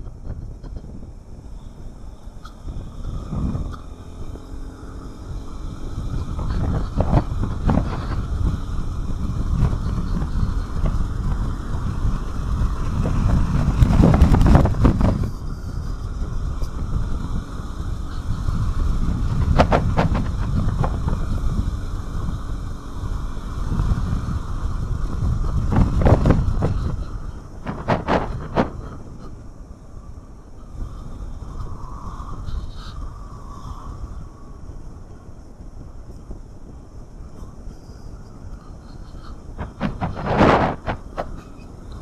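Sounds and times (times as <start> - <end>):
scooter engine: 0.0 - 42.0
wind rushing over microphone: 0.0 - 42.0
tyre noise: 38.9 - 42.0.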